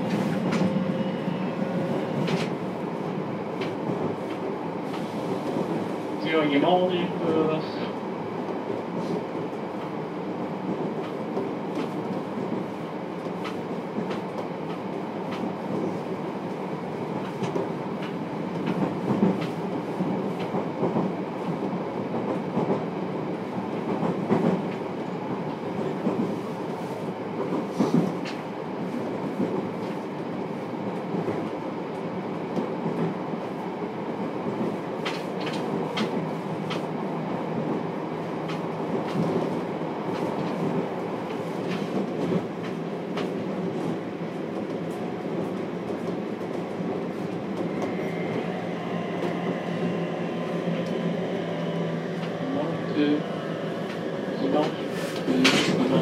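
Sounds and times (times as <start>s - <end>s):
train interior rumble: 0.0s - 56.0s
train wheels clicking: 34.6s - 36.9s.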